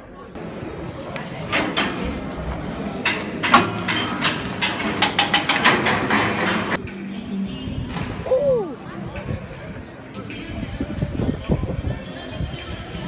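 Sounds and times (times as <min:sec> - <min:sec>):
sharp clicks and knocks: 0:00.4 - 0:06.8.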